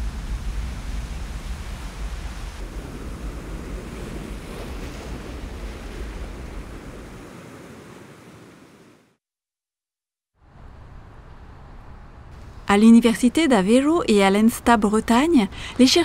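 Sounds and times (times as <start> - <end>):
ocean surf on rocky shore: 0.0 - 9.2.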